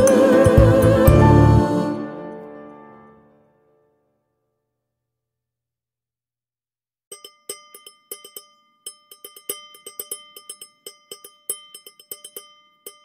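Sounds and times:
held ringing tones: 0:07.1 - 0:13.0
small bell chime strikes: 0:07.1 - 0:13.0.

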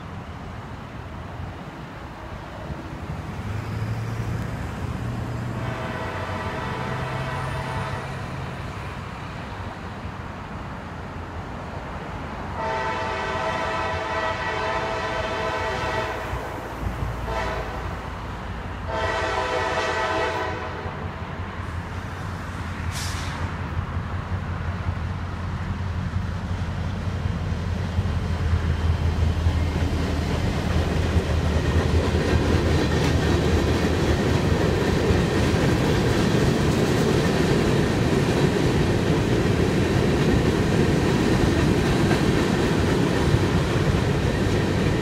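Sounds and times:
low train rumble: 0:00.0 - 0:45.0
locomotive air horn blasts: 0:05.6 - 0:08.3, 0:12.6 - 0:16.4, 0:17.2 - 0:17.9, 0:18.8 - 0:21.0.

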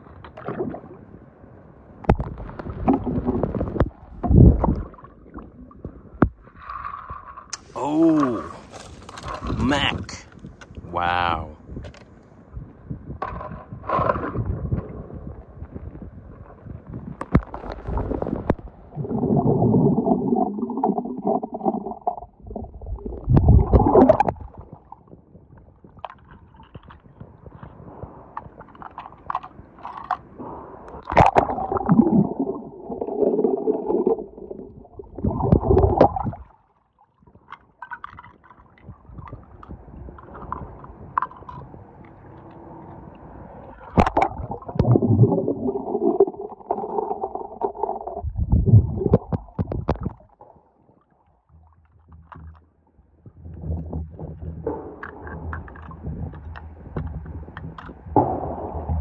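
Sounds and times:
underwater bubbling surges: 0:00.0 - 0:01.2, 0:02.1 - 0:10.1, 0:13.7 - 0:29.3, 0:30.3 - 0:36.6, 0:38.2 - 0:51.2, 0:53.2 - 0:59.0
muffled underwater gurgling: 0:07.6 - 0:11.8, 0:17.4 - 0:24.9, 0:30.4 - 0:36.5, 0:43.8 - 0:50.5, 0:51.4 - 0:59.0.

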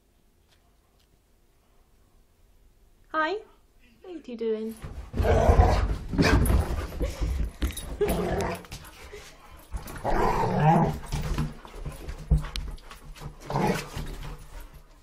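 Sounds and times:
dogs running down carpeted stairs: 0:04.8 - 0:15.0.

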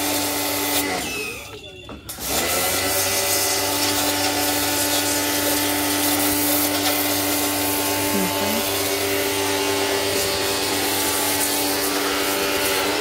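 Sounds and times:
pump motor humming: 0:00.0 - 0:01.5, 0:02.1 - 0:13.0
water jet hissing: 0:03.2 - 0:13.0.

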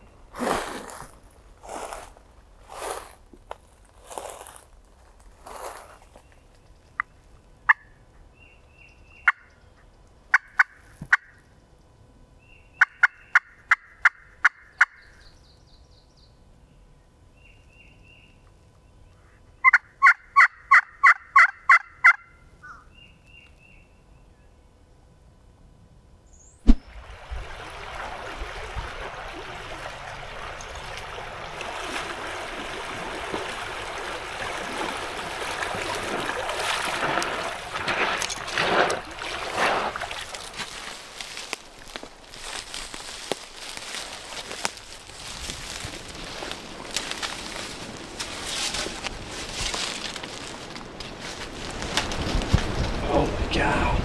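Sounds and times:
faint songbird chirps: 0:06.1 - 0:10.1, 0:14.7 - 0:19.7
turkey clucks and yelps: 0:19.6 - 0:22.9
wind noise: 0:44.9 - 0:54.0.

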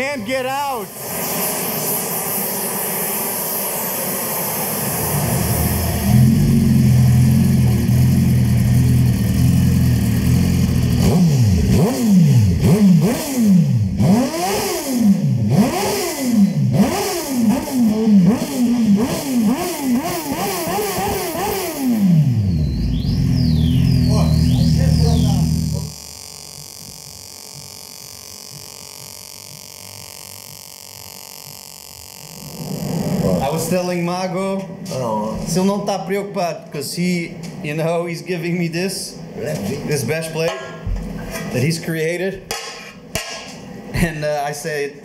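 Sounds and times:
pneumatic grinder hissing: 0:00.9 - 0:07.5, 0:19.8 - 0:33.5
motorcycle engine revving: 0:00.9 - 0:34.1
motorcycle idling: 0:03.1 - 0:12.6, 0:17.2 - 0:33.6.

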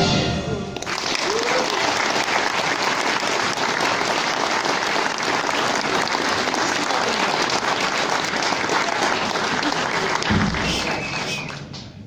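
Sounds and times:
audience applauding: 0:00.8 - 0:11.9.

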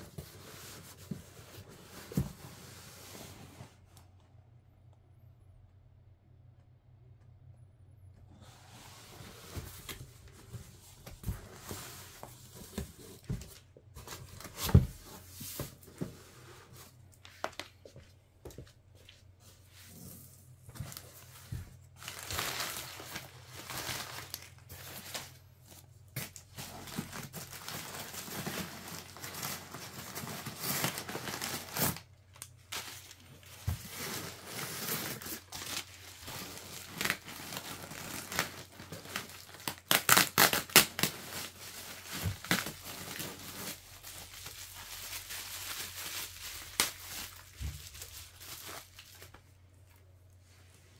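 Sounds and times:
wrapping tearing and crinkling: 0:20.1 - 0:50.0.

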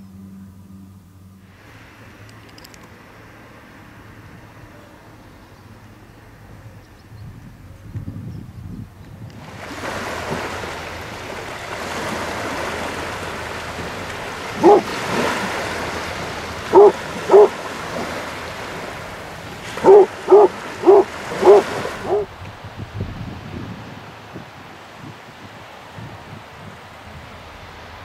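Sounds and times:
small waves washing onto beach: 0:01.4 - 0:06.5, 0:09.1 - 0:28.0
dog barking: 0:14.6 - 0:15.0, 0:16.7 - 0:17.6, 0:19.8 - 0:22.3.

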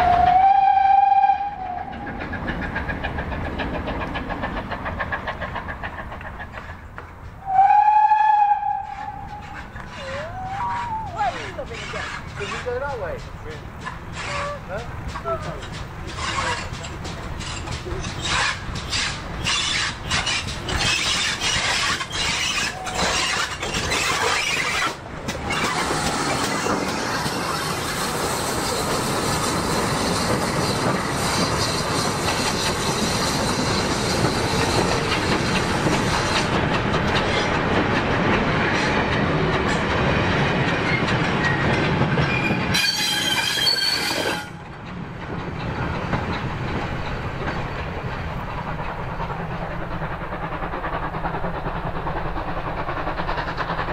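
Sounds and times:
steam locomotive exhaust beats: 0:00.0 - 0:53.9
wagon wheels rumbling on rails: 0:01.4 - 0:53.9
high wheel squeal: 0:08.8 - 0:13.0, 0:13.8 - 0:34.9, 0:40.9 - 0:44.6.

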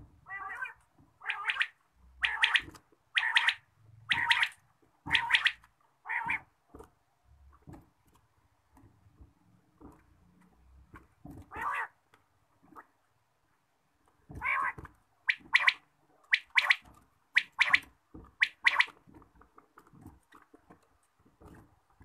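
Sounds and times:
quail calling: 0:00.3 - 0:06.5, 0:11.5 - 0:11.9, 0:14.4 - 0:16.8, 0:17.4 - 0:19.0.

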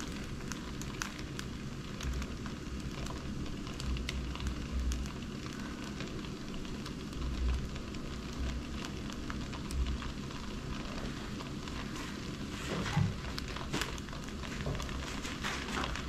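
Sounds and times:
batter sizzling in a skillet: 0:00.0 - 0:16.0.

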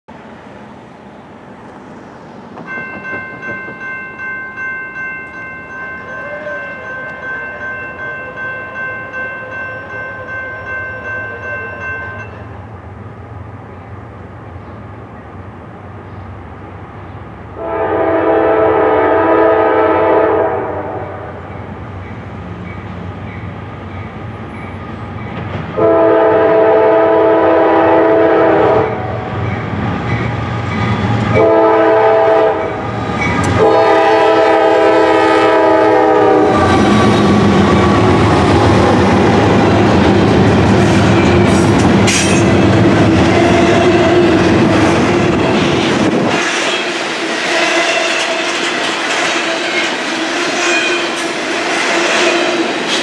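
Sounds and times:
train rumbling: 0:00.1 - 0:53.0
locomotive air horn blasts: 0:17.6 - 0:21.4, 0:25.7 - 0:29.3, 0:31.3 - 0:32.8, 0:33.5 - 0:37.2.

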